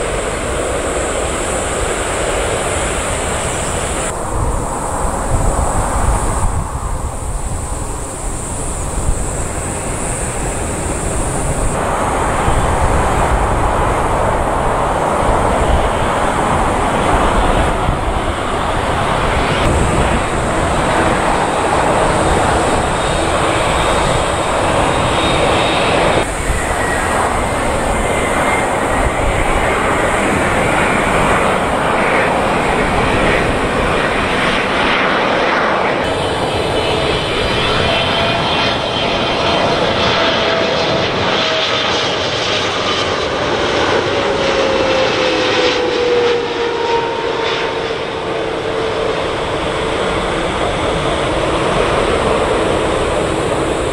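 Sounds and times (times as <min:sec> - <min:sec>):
jet engines roaring: 0:00.0 - 0:53.9.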